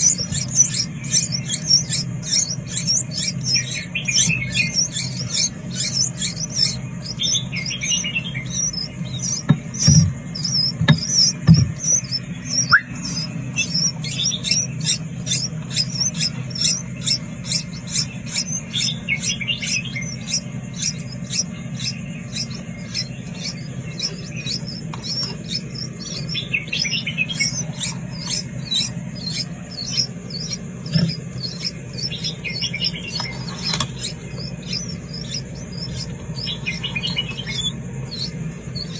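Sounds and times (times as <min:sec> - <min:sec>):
nestling birds begging chirps: 0:00.0 - 0:38.9
steady low hum: 0:00.0 - 0:38.9.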